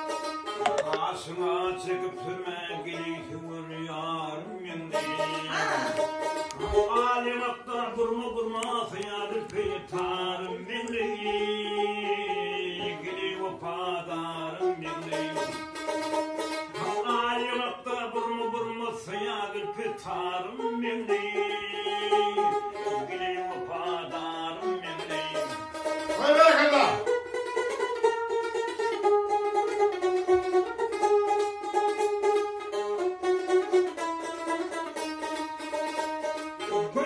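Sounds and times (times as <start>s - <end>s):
lute strummed and plucked: 0.0s - 37.0s
man singing long held notes: 0.8s - 15.6s, 16.7s - 25.8s.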